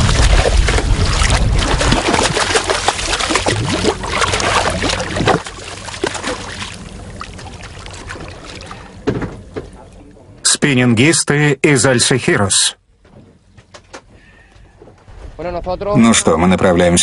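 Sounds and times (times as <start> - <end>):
fish thrashing splashing water: 0.0 - 9.8.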